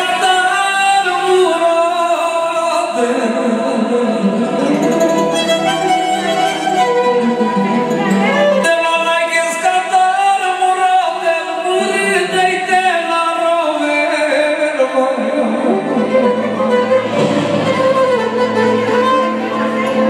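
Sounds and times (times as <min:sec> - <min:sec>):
man singing into microphone: 0:00.0 - 0:05.4, 0:08.4 - 0:17.2
live band accompaniment: 0:00.0 - 0:20.0.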